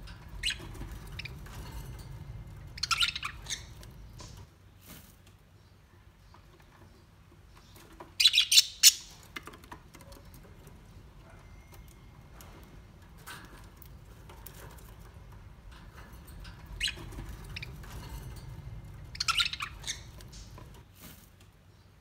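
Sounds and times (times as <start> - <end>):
low steady rumble: 0.0 - 4.5, 10.5 - 20.8
sharp bird calls: 2.7 - 4.4, 19.0 - 20.8.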